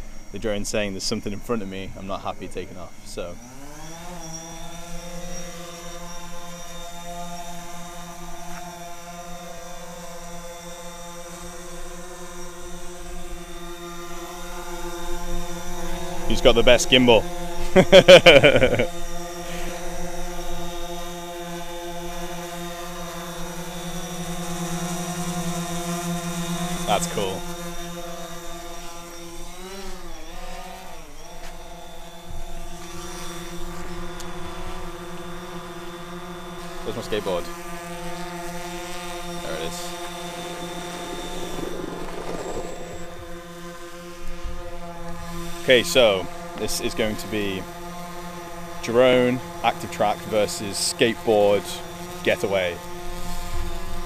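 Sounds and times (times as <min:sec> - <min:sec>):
drone propellers buzzing: 0:00.0 - 0:54.0.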